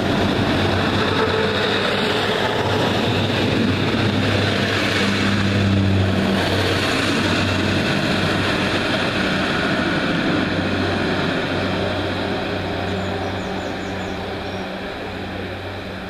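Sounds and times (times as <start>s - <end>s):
train diesel engines droning: 0.0s - 16.0s
train running over track: 0.0s - 16.0s.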